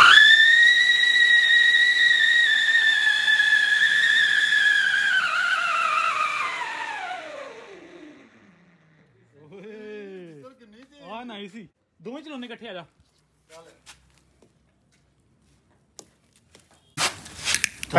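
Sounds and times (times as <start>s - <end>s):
shrill firework whistle: 0.0s - 7.8s.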